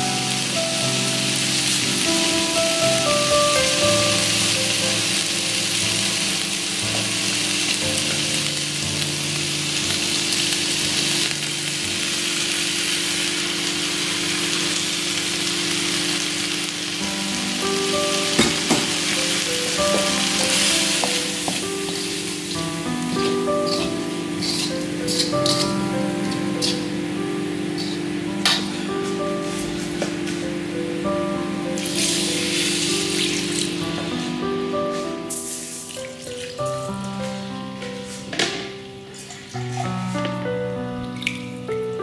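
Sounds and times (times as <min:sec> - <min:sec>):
chicken sizzling in a wok: 0:00.0 - 0:28.6, 0:31.8 - 0:33.9
background music: 0:17.0 - 0:42.0.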